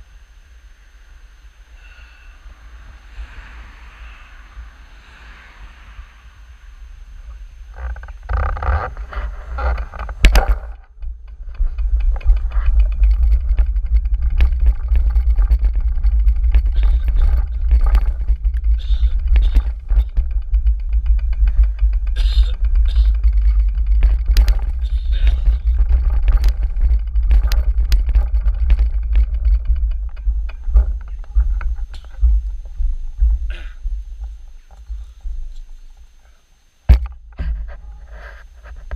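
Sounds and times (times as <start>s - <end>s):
wind rumbling on microphone: 0.0s - 38.9s
bicycle knocks and rattles: 7.7s - 35.9s, 36.9s - 38.9s.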